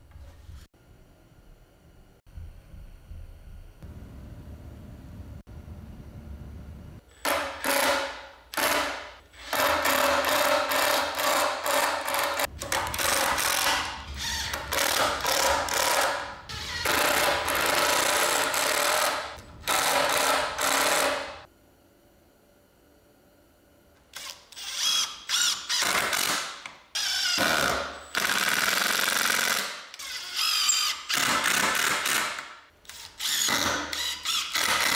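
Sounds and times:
impact driver hammering: 0:07.2 - 0:21.4.

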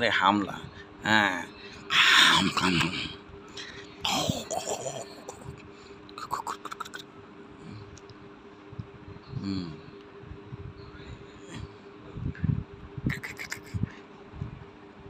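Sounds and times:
faint steady hum: 0:00.0 - 0:15.0
person murmuring: 0:01.9 - 0:03.2, 0:04.0 - 0:05.6, 0:06.2 - 0:07.0, 0:09.4 - 0:09.9, 0:13.1 - 0:14.0.

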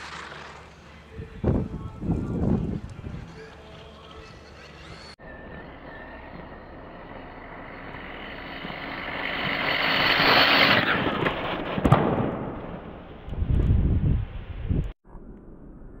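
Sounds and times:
rc truck motor whine: 0:04.8 - 0:11.2.

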